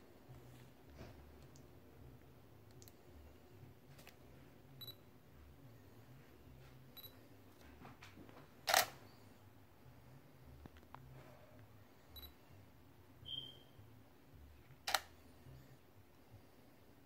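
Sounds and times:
camera shutter clack: 0:08.7 - 0:09.0, 0:14.9 - 0:15.1
faint camera clicks: 0:08.7 - 0:09.0, 0:14.9 - 0:15.1
short high beeps: 0:13.2 - 0:13.7.

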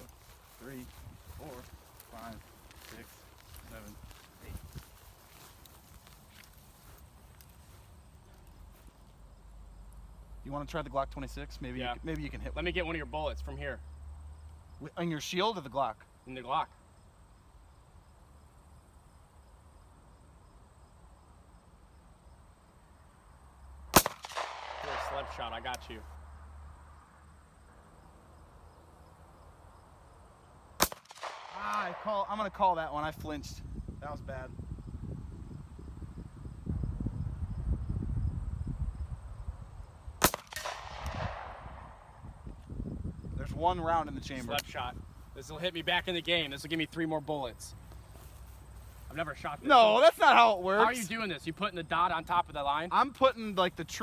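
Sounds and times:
insect chirping: 0:00.0 - 0:54.0
insects buzzing: 0:00.0 - 0:54.0
pistol shot with echo: 0:23.9 - 0:25.8, 0:30.8 - 0:32.1, 0:40.2 - 0:42.2.

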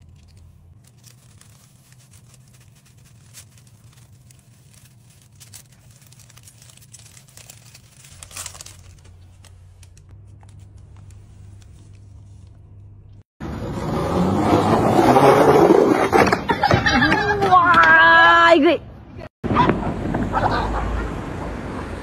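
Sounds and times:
paper towel rustling: 0:00.0 - 0:12.8
low steady hum: 0:00.0 - 0:13.2.

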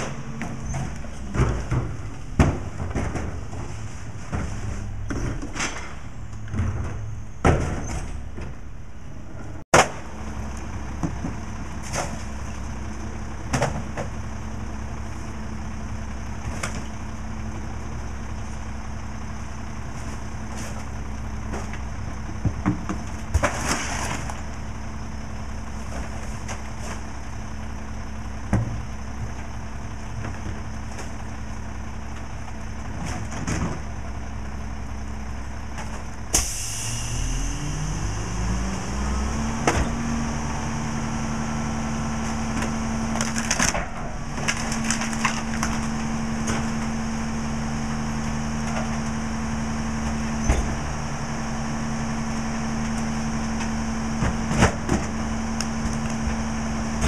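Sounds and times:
trash knocking into hopper: 0:00.0 - 0:08.6
diesel truck engine idling: 0:08.1 - 0:23.4, 0:24.2 - 0:33.0, 0:33.7 - 0:57.0
hydraulic hiss: 0:36.3 - 0:37.2.

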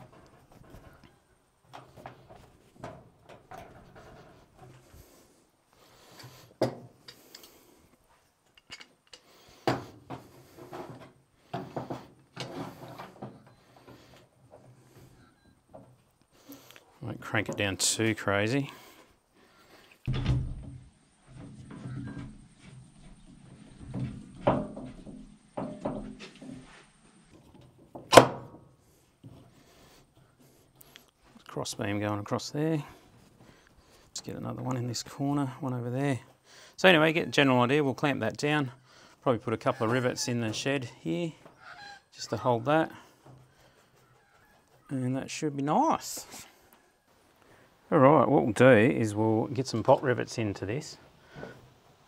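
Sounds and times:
metal clamps clanking on steel bench: 0:08.5 - 0:09.3.

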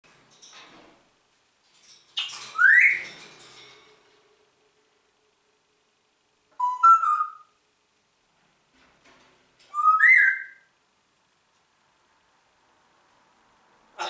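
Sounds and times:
parrot whistling: 0:06.5 - 0:07.5, 0:09.7 - 0:10.7.

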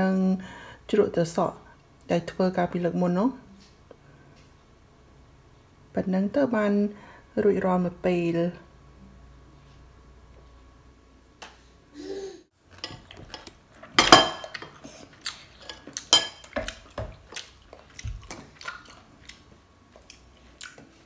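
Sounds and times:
cutlery clinking on plates: 0:12.8 - 0:14.8, 0:15.6 - 0:16.8.

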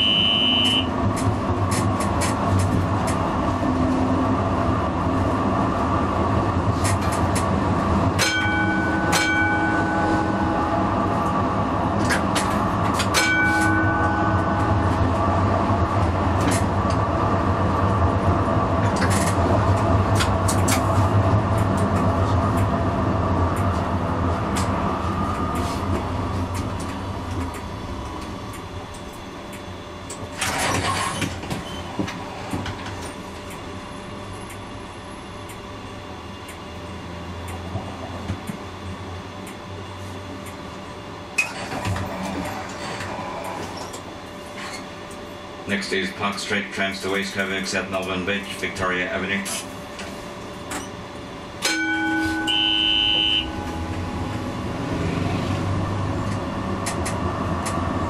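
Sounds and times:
tram motor running hum: 0:00.0 - 0:58.0
short ringing tones: 0:51.7 - 0:54.0.

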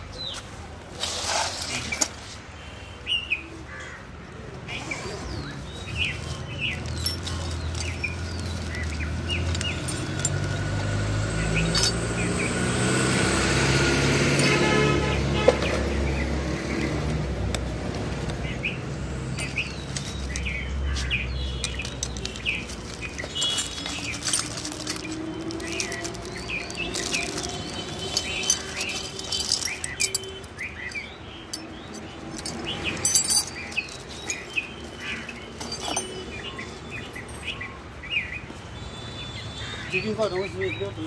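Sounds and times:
small birds chirping: 0:01.7 - 0:13.1, 0:15.6 - 0:41.0
hand tools clicking and rustling: 0:06.0 - 0:12.5, 0:14.2 - 0:15.8, 0:19.3 - 0:37.5.

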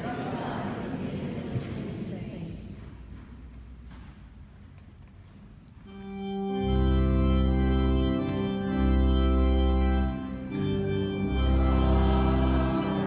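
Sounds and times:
church organ chords: 0:05.9 - 0:13.0
deep bass pedal notes: 0:06.0 - 0:13.0.

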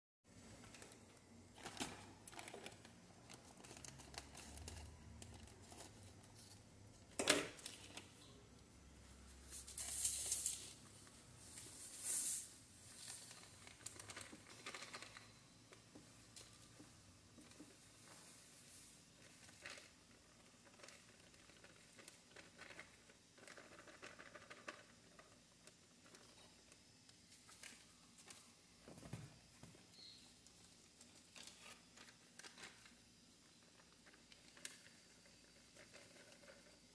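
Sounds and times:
plastic bag crinkling: 0:00.6 - 0:06.6.

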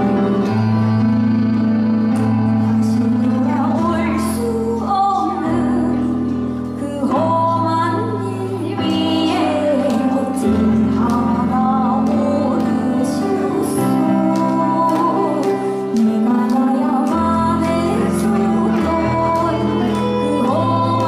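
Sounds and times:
instrumental accompaniment: 0:00.0 - 0:21.0
woman singing into a microphone: 0:02.7 - 0:21.0.

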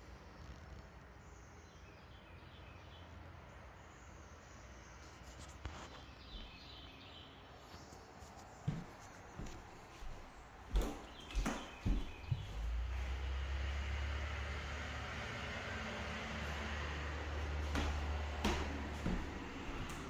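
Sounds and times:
footsteps on wooden floorboards: 0:08.6 - 0:13.4, 0:16.4 - 0:20.0.

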